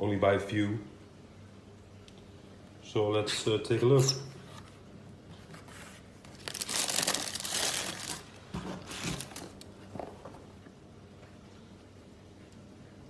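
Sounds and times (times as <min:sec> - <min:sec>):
tissue paper crinkling: 0:05.6 - 0:10.2.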